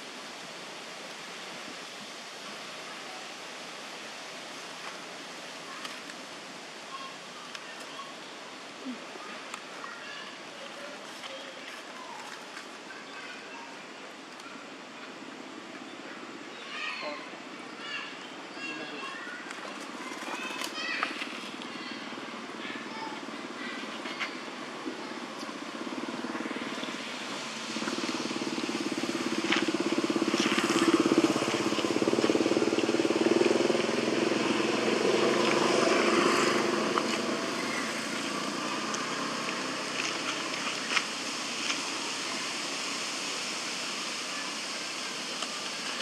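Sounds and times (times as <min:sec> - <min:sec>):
outdoor background noise: 0:00.0 - 0:46.0
vehicle engine passing by: 0:25.2 - 0:43.1.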